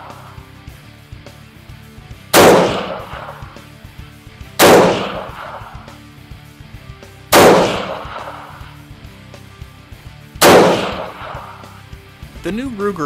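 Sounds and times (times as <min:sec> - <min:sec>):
rifle shots with echo: 0:02.3 - 0:03.8, 0:04.6 - 0:06.0, 0:07.3 - 0:08.8, 0:10.4 - 0:11.8.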